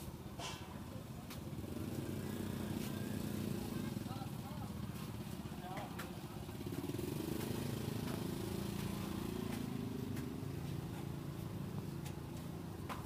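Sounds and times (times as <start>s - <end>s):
engine running at low revs: 6.3s - 13.0s.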